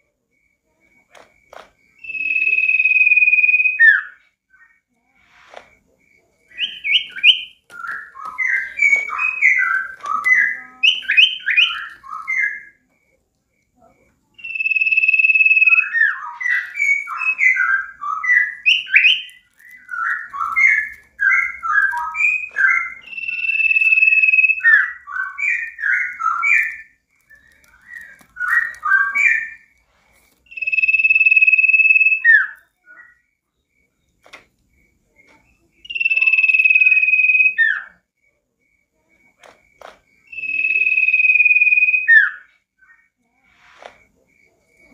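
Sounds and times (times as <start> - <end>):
bird long whistle: 2.0 - 4.3, 6.6 - 12.8, 14.4 - 29.7, 30.5 - 33.2, 35.8 - 38.0, 40.3 - 43.1
bird chirping: 2.0 - 13.1, 14.4 - 29.8, 30.4 - 38.0, 40.1 - 44.9.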